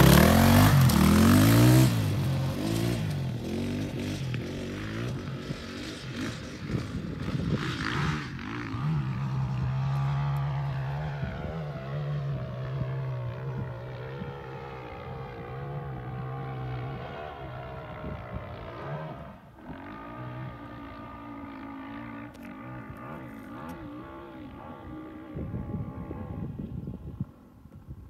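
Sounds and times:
dirt bike engine at high revs: 0.0s - 27.4s.

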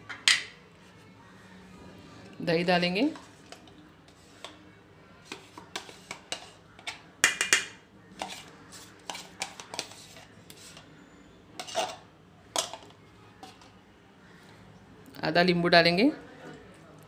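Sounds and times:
spoon scraping in bowl: 3.1s - 4.6s, 5.2s - 11.0s, 11.6s - 13.8s.

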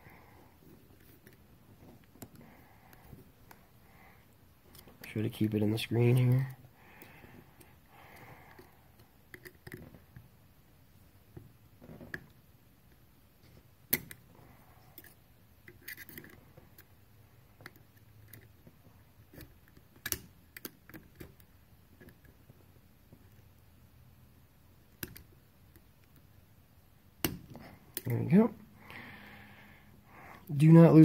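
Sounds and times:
small metal clicks: 19.4s - 22.3s.

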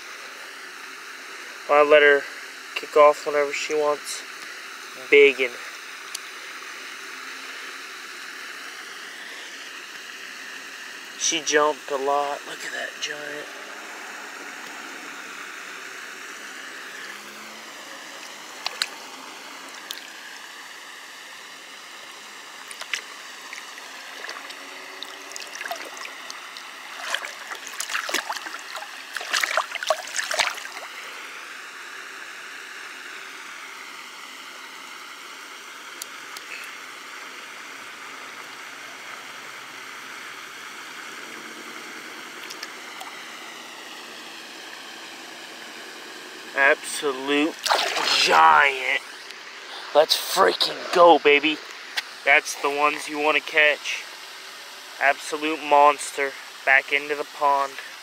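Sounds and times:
steady background hiss: 0.0s - 58.0s
fish splashing in water: 16.9s - 20.3s, 22.6s - 31.0s, 47.5s - 48.7s.

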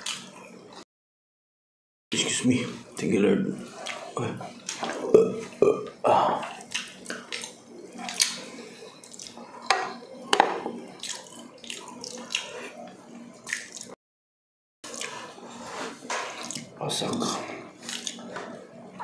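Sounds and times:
chewing and lip smacks: 6.5s - 9.4s, 10.9s - 12.8s, 13.4s - 14.0s, 14.9s - 15.2s, 16.4s - 16.7s, 17.8s - 18.2s.

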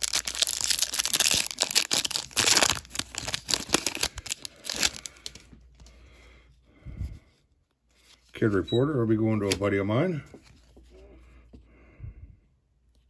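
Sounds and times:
plastic wrapper tearing and crinkling: 0.0s - 5.5s.

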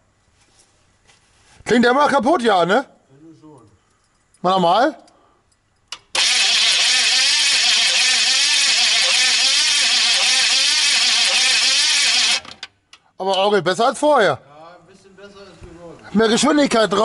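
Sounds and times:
starter motor cranking engine: 6.0s - 12.8s.

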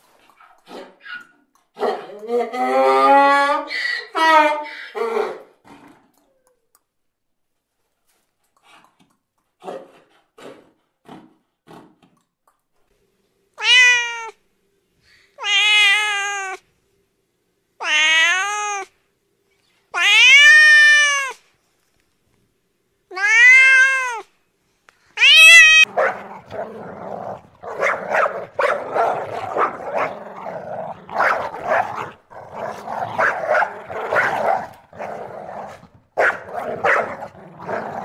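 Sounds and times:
cat meowing: 13.6s - 14.4s, 15.4s - 16.6s, 17.8s - 18.9s, 20.0s - 21.4s, 23.1s - 24.3s, 25.2s - 25.9s
puppy growling: 25.8s - 38.0s.

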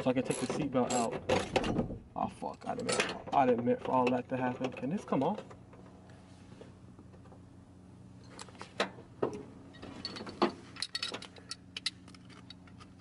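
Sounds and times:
small metallic clicks and rattles: 0.0s - 1.8s, 2.5s - 6.0s, 8.2s - 13.0s.

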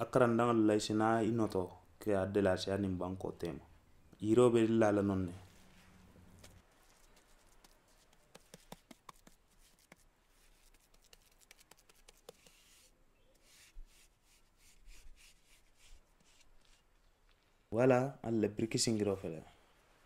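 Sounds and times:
soil clicks: 6.4s - 12.6s.

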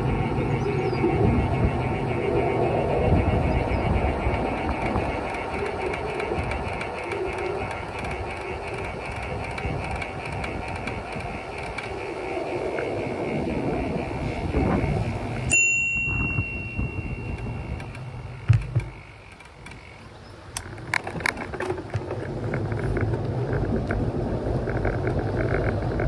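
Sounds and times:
wind on microphone: 0.0s - 26.0s
sharp clicks: 4.0s - 12.9s, 17.2s - 24.0s
bicycle bell ringing: 15.5s - 18.3s.

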